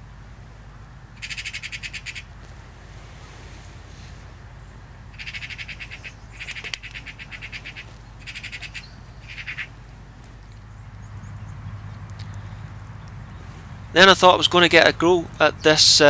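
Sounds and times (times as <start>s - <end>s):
magpies chattering: 1.2s - 2.3s, 5.1s - 9.9s
sharp click: 6.5s - 7.0s.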